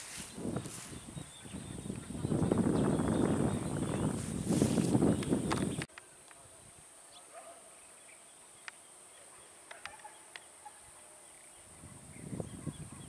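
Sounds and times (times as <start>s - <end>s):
wind buffeting microphone: 0.0s - 5.9s, 11.7s - 13.0s.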